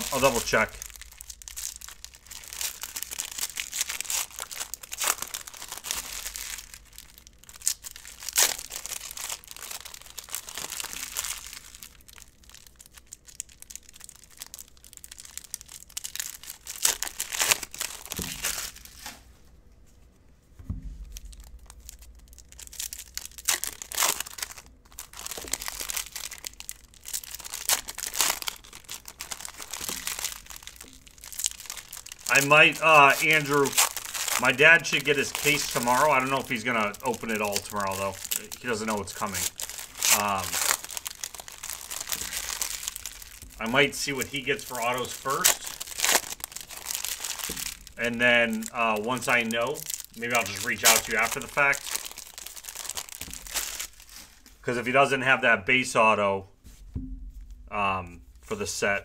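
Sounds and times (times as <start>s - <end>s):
cards rustling: 0.0s - 19.3s, 21.0s - 54.6s
wrappers crinkling and tearing: 0.0s - 19.3s, 21.0s - 55.1s.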